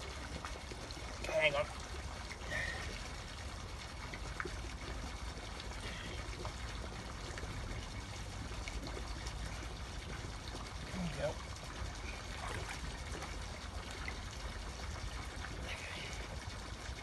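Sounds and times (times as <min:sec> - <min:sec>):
faint splashes: 0:00.0 - 0:17.0.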